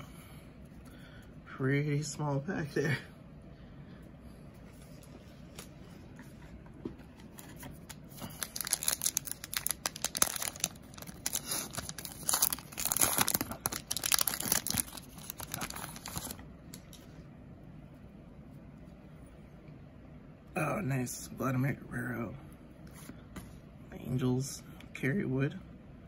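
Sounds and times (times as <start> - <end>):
wrapper being torn and crinkled: 7.9 - 16.4.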